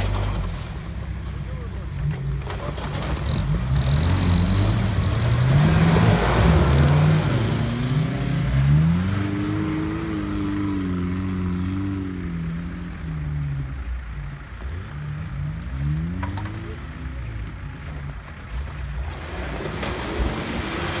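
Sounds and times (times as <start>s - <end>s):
wheels spinning in water and slush: 0.0s - 8.0s, 12.4s - 21.0s
engine revving hard: 3.2s - 11.9s.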